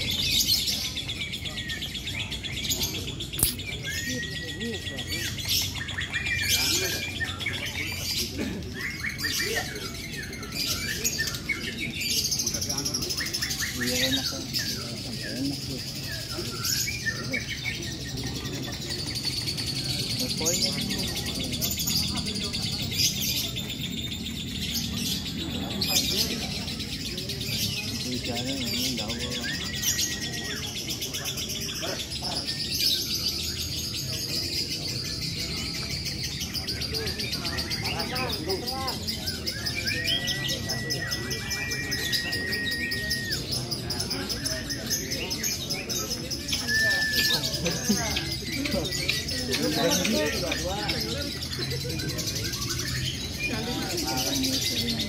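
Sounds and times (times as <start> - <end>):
lovebirds chirping: 0.0 - 8.2
lovebirds chirping and chattering: 0.0 - 55.0.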